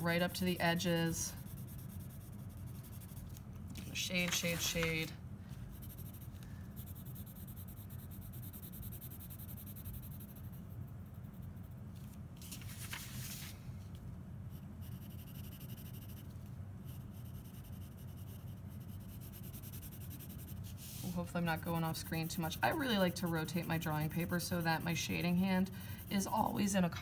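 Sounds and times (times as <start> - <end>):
low steady hum: 0.0 - 27.0
pencil scratching on paper: 0.1 - 5.1, 5.7 - 11.7, 14.8 - 16.3, 16.9 - 27.0
paper rustling: 3.3 - 5.1, 12.0 - 13.6.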